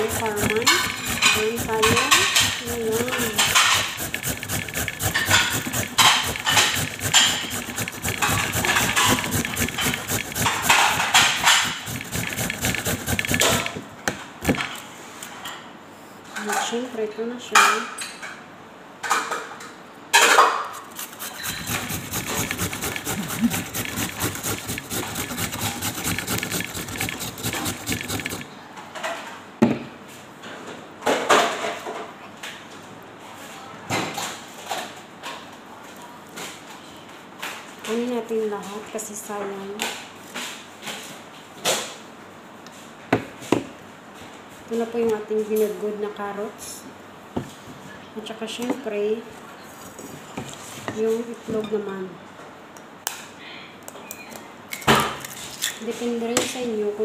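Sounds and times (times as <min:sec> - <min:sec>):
carrot being grated: 0:00.0 - 0:13.8, 0:20.9 - 0:28.5.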